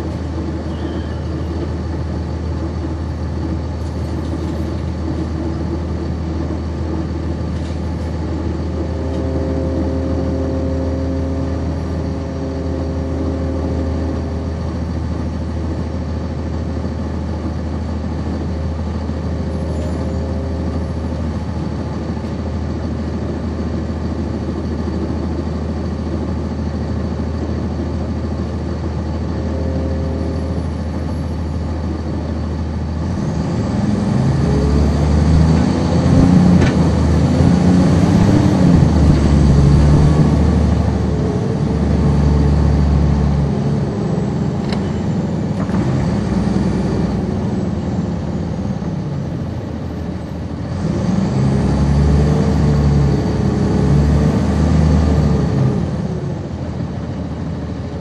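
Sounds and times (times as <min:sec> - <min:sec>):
bus diesel engine droning: 0:00.0 - 0:58.0
higher steady tones: 0:28.3 - 0:32.8, 0:35.2 - 0:42.8.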